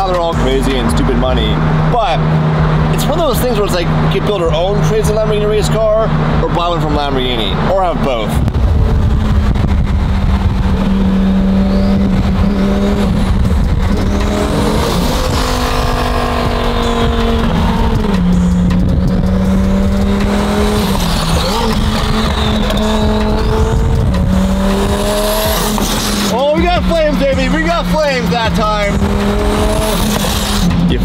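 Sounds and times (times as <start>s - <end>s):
sports car engine: 0.0s - 31.0s.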